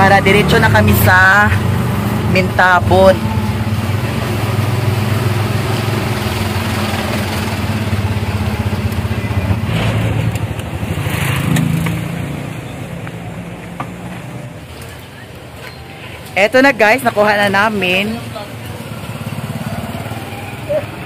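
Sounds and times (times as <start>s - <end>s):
motorcycle engine running: 0.0s - 13.1s, 17.6s - 21.0s.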